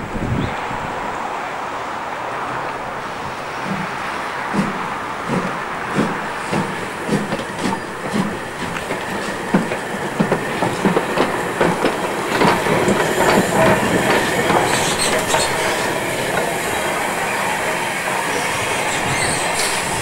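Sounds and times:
steam locomotive rolling: 0:00.0 - 0:20.0
wheels clanking over rail joints: 0:02.5 - 0:20.0
steam hiss: 0:03.5 - 0:20.0.

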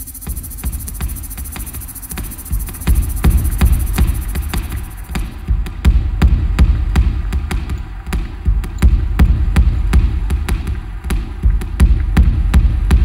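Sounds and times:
sharp dry electronic clicks: 0:00.0 - 0:05.5
deep bass pulses: 0:00.0 - 0:07.4.

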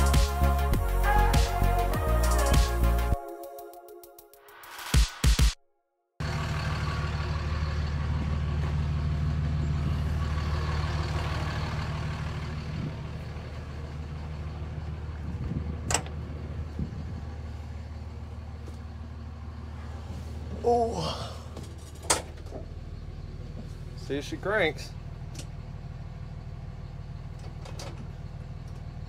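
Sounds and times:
vehicle engine idling: 0:06.2 - 0:29.0.

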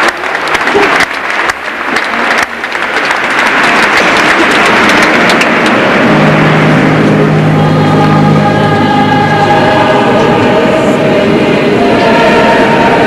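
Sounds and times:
crowd applauding: 0:00.0 - 0:07.6
low held music chord: 0:04.6 - 0:13.0.

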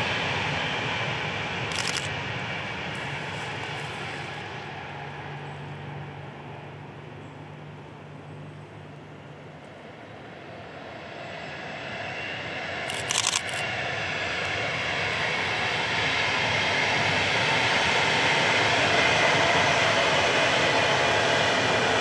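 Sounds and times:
train approaching: 0:00.0 - 0:22.0
sharp clicks: 0:01.7 - 0:02.1, 0:12.9 - 0:13.7.

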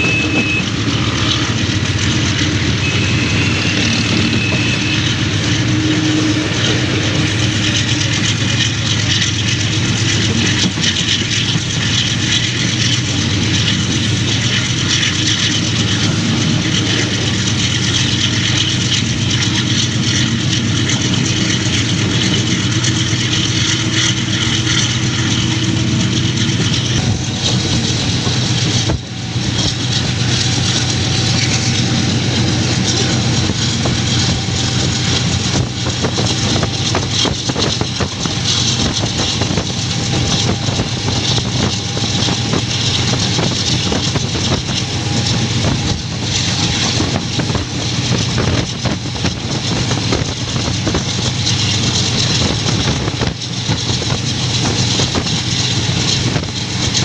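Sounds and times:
locomotive engine hum: 0:00.0 - 0:57.0
train running on rails: 0:00.0 - 0:57.0.

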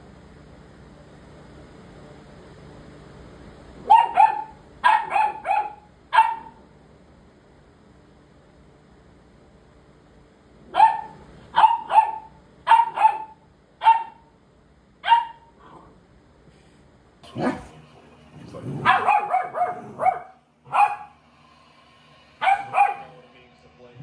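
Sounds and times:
puppy barking: 0:03.8 - 0:06.6, 0:10.7 - 0:14.3, 0:15.0 - 0:15.6, 0:18.8 - 0:21.2, 0:22.4 - 0:23.2.

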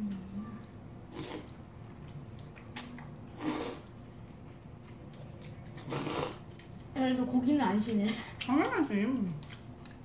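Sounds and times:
slurping and chewing noodles: 0:01.0 - 0:07.0.

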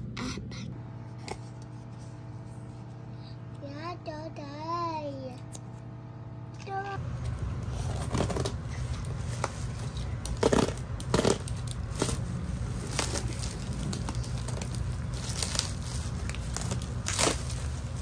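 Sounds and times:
steady low hum: 0:00.0 - 0:18.0
plastic wrapping crinkling: 0:07.6 - 0:18.0.

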